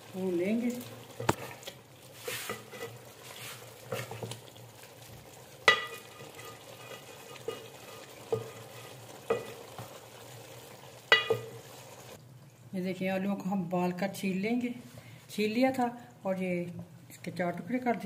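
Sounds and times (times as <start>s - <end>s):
leaves sizzling and bubbling: 0.0s - 13.5s
spatula scraping pot: 1.2s - 4.4s, 5.7s - 10.0s
spatula knocking against pot: 5.7s - 6.6s, 8.3s - 8.7s, 9.3s - 9.7s, 11.1s - 11.6s.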